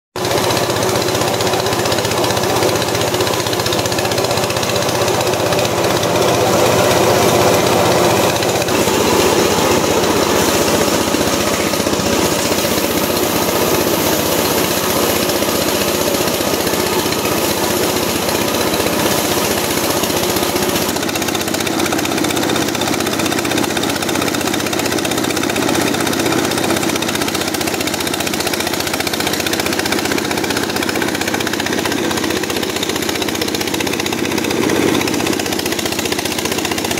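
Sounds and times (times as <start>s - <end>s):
rice thresher running: 0.2s - 36.9s.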